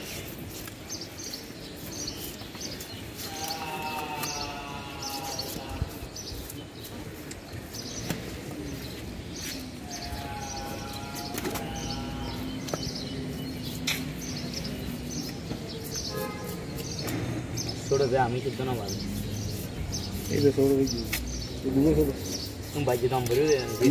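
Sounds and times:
knife scraping fish scales: 15.9s - 17.0s.

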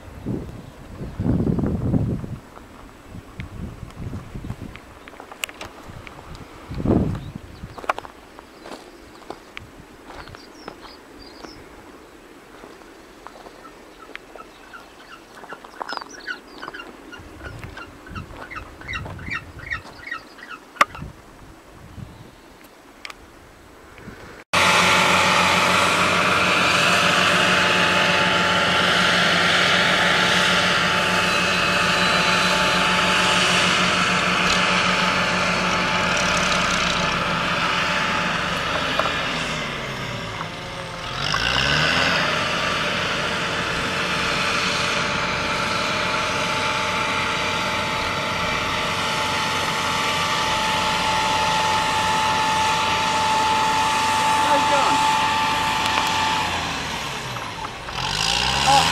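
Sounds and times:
diesel construction vehicles running: 13.5s - 20.9s, 24.6s - 58.9s.

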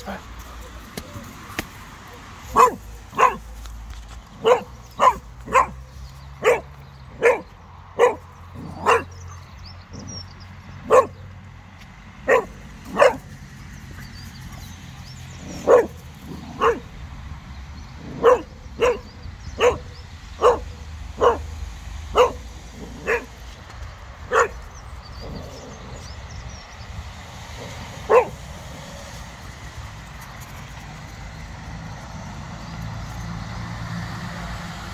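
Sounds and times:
dog barking: 2.1s - 3.5s, 4.4s - 5.8s, 6.4s - 9.3s, 10.8s - 11.2s, 12.2s - 13.3s, 15.5s - 16.9s, 18.1s - 21.5s, 22.1s - 23.4s, 24.3s - 24.6s, 27.6s - 28.4s.

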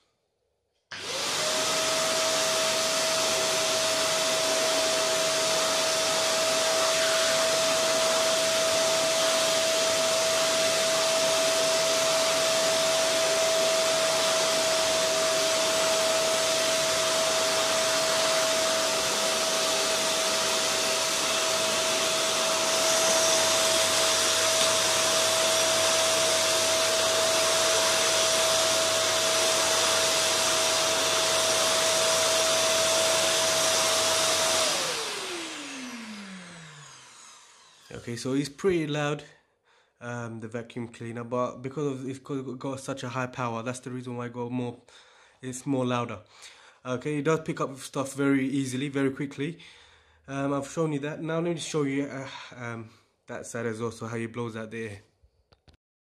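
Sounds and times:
vacuum motor whine: 0.9s - 38.0s
vacuum cleaner air rush: 0.9s - 38.7s.

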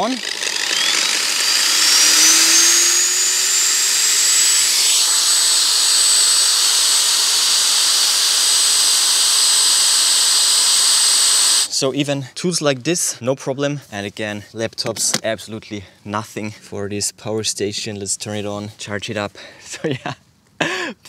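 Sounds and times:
angle grinder whining: 0.0s - 11.8s.

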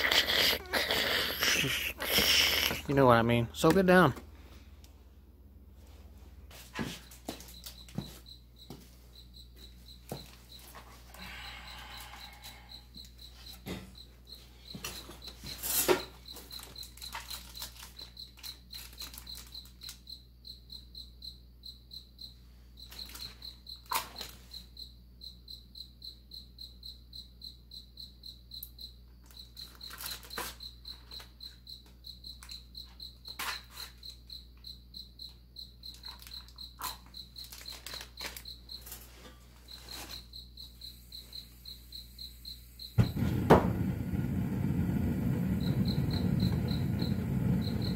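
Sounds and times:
cricket chirping: 0.0s - 5.0s, 6.5s - 47.9s
loud low flame rush: 43.0s - 47.9s.

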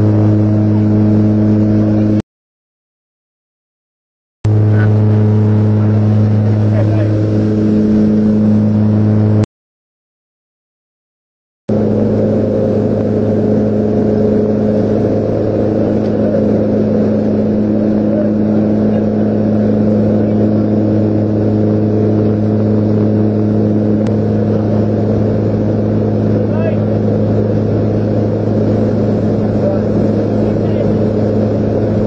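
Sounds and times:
turboprop engines droning: 0.0s - 2.2s, 4.4s - 9.5s, 11.7s - 32.0s
wind rushing: 11.7s - 32.0s.

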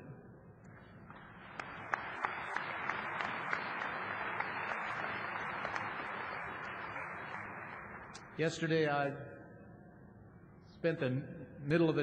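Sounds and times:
audience applauding: 0.8s - 8.3s.

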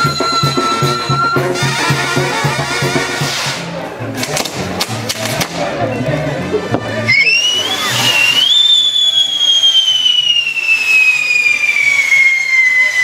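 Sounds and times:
shrill whistling firework: 0.0s - 1.5s, 7.1s - 13.0s
band music: 0.0s - 8.8s
firework crackles: 7.2s - 13.0s.

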